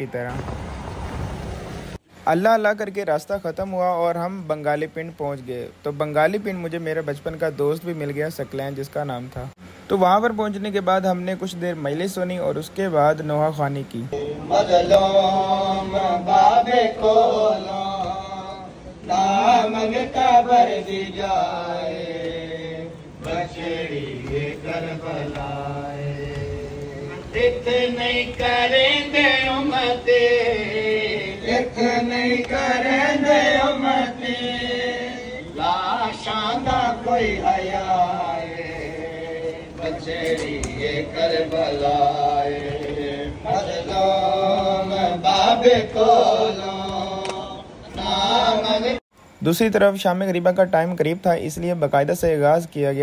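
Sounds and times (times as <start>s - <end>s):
men chanting a lament: 13.9s - 49.0s.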